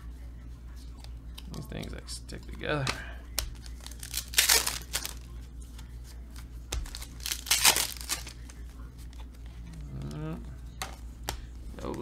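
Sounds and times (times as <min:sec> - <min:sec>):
foil wrapper tearing and crinkling: 0:03.6 - 0:05.2, 0:06.8 - 0:08.6.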